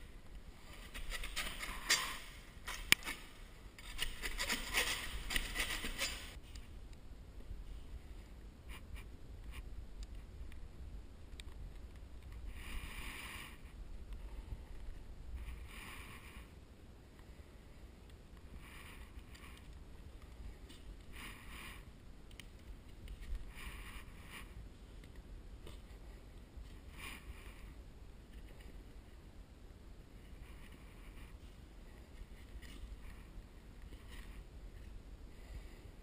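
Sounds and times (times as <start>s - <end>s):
utility knife cutting drywall tape: 0.8s - 6.4s.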